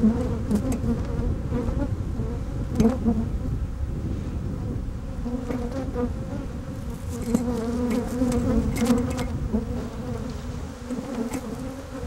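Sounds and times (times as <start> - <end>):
bees buzzing: 4.7 - 12.0.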